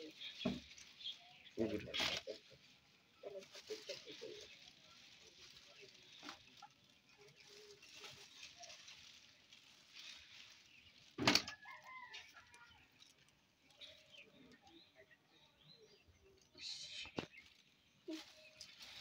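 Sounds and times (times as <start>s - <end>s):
chickens clucking: 0.0s - 12.2s.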